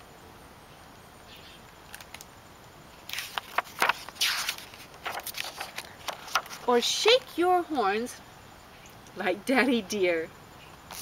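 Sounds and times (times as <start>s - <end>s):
book page turning: 1.9s - 2.3s, 3.1s - 6.7s.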